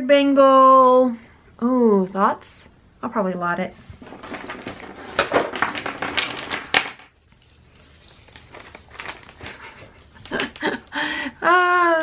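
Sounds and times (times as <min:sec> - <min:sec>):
jewelry clinking: 0:04.0 - 0:07.5.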